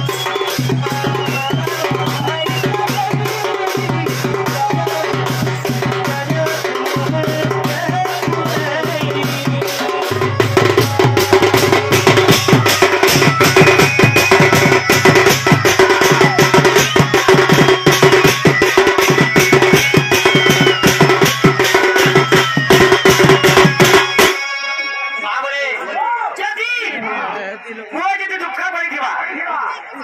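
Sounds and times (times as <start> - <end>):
barrel drum beaten with a stick: 3.1 - 24.2
gliding high melody: 9.0 - 25.8.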